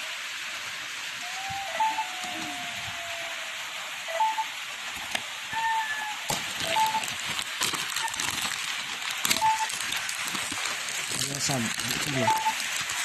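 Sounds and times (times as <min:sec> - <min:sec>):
steady hiss: 0:00.0 - 0:13.0
faint high beeps: 0:01.6 - 0:02.6, 0:04.1 - 0:04.5, 0:06.6 - 0:07.0, 0:12.1 - 0:12.6.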